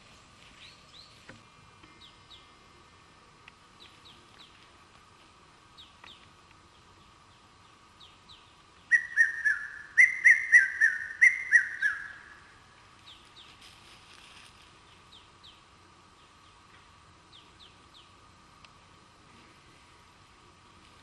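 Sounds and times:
steady high hum: 0.0s - 21.0s
faint bird chirps: 5.7s - 13.6s.

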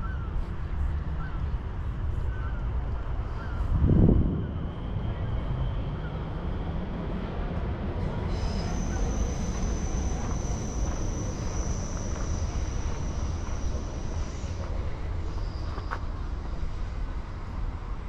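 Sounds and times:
train rumbling: 0.0s - 18.0s
high wheel squeal: 8.0s - 16.6s.

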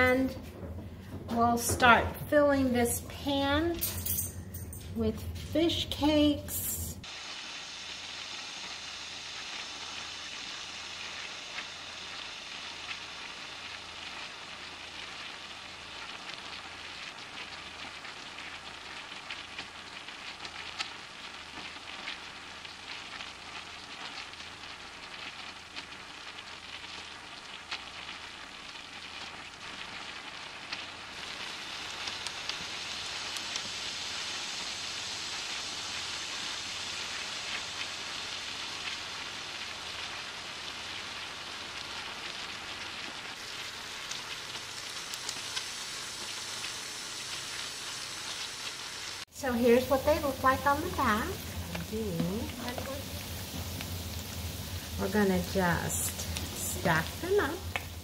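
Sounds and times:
food sizzling in hot oil: 1.5s - 58.0s
crackling pops: 42.2s - 48.5s, 49.2s - 58.0s.

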